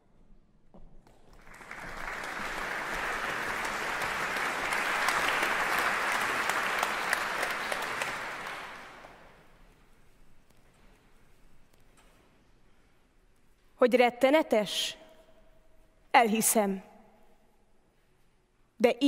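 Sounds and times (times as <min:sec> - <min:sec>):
audience applauding: 0:01.3 - 0:09.4.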